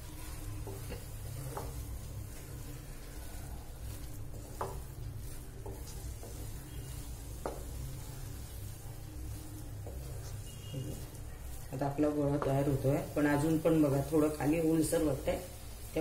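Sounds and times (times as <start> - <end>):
spatula stirring and scraping pan: 0.0 - 16.0.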